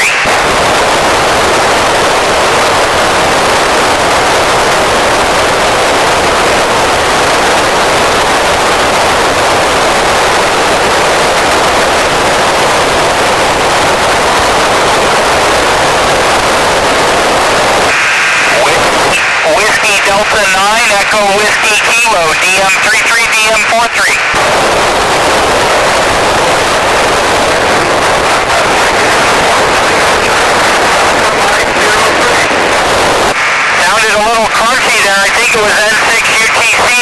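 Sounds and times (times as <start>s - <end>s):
radio static hiss: 0.0s - 37.0s.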